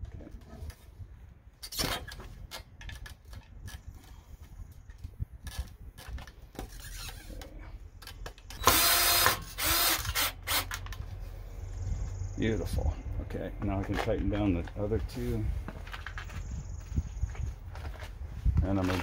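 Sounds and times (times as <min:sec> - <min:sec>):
cordless drill driving a screw: 0:08.5 - 0:10.9.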